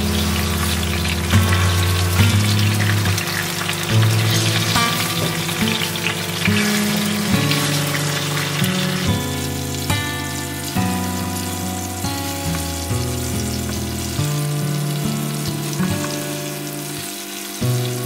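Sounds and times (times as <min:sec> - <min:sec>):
fish sizzling in oil: 0:00.0 - 0:18.0
spatula turning fish in pan: 0:00.0 - 0:18.0.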